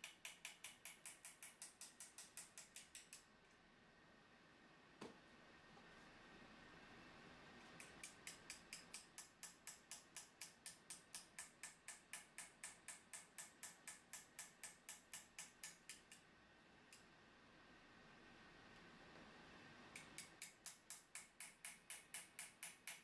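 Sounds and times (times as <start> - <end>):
hammer tapping steel chisel: 0.0 - 3.2, 7.8 - 16.2, 20.0 - 23.0.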